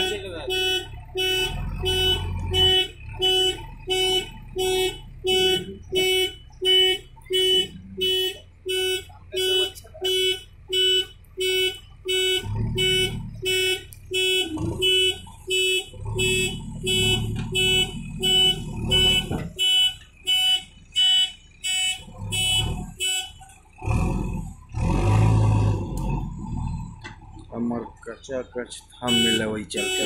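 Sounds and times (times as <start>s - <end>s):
reversing alarm beeping: 0.0s - 23.4s, 28.8s - 30.0s
diesel engine revving: 0.0s - 30.0s.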